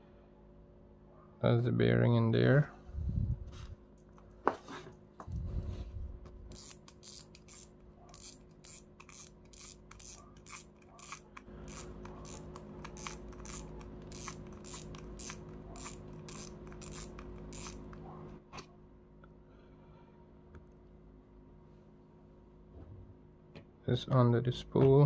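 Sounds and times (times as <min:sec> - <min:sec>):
fishing reel clicking: 0:06.5 - 0:17.8
parts rubbing and scraping: 0:06.5 - 0:18.1.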